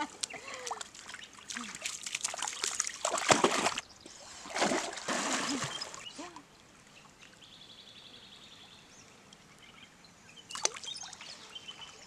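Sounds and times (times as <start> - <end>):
dog splashing through water: 0.6 - 3.8, 4.5 - 6.0.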